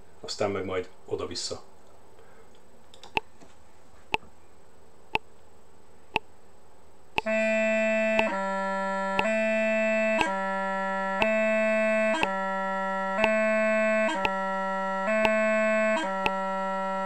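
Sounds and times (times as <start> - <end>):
bagpipe practice chanter playing: 7.2 - 17.0.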